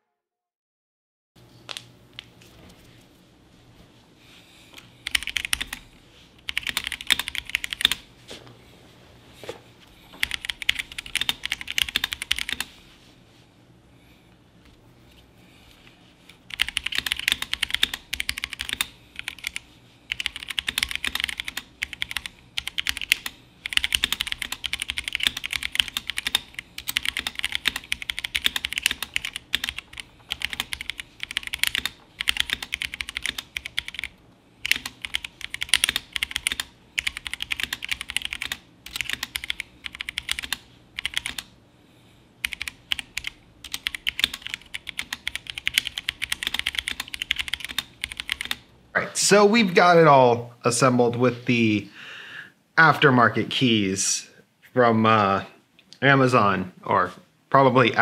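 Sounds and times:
mechanical keyboard typing: 0:05.0 - 0:05.8, 0:06.4 - 0:08.0, 0:10.2 - 0:12.7, 0:16.4 - 0:41.5, 0:42.4 - 0:48.6.

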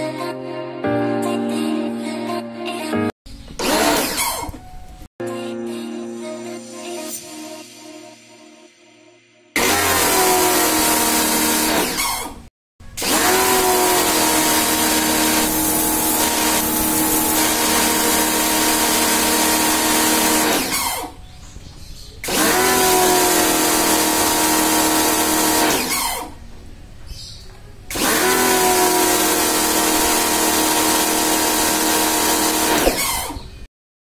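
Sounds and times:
pressure washer motor running: 0:03.6 - 0:04.6, 0:09.6 - 0:12.4, 0:13.0 - 0:21.2, 0:22.2 - 0:26.4, 0:27.9 - 0:33.4.

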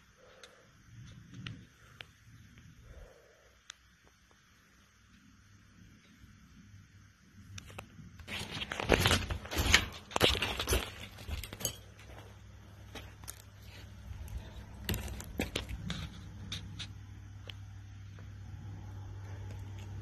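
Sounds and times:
footsteps on wooden boards and rubble: 0:08.4 - 0:15.9.

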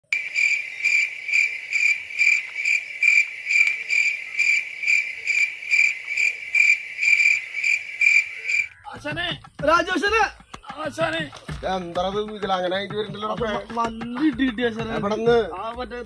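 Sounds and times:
insect chirping: 0:00.0 - 0:11.0.

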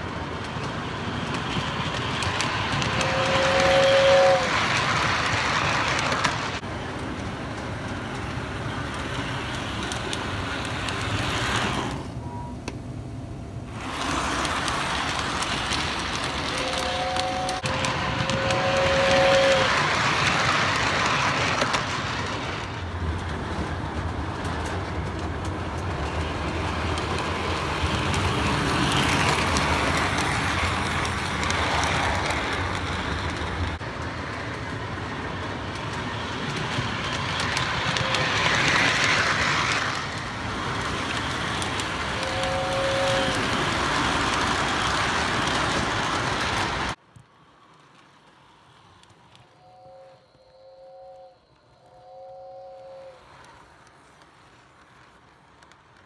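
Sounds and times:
model train whirring and rattling: 0:00.0 - 0:12.2, 0:13.7 - 0:49.7, 0:53.1 - 0:56.0
two-note train whistle toots: 0:03.0 - 0:04.6, 0:16.5 - 0:19.8, 0:42.2 - 0:43.5, 0:49.5 - 0:53.2.

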